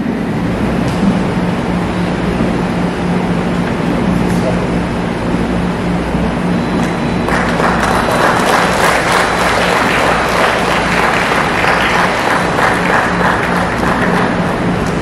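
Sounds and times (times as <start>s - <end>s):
audience applauding: 7.3s - 15.0s.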